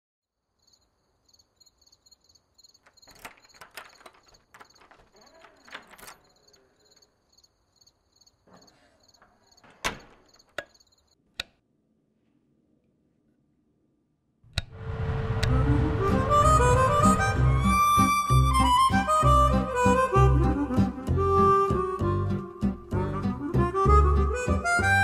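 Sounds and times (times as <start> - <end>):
door clicks and knocks: 2.8 - 6.5, 9.6 - 10.8.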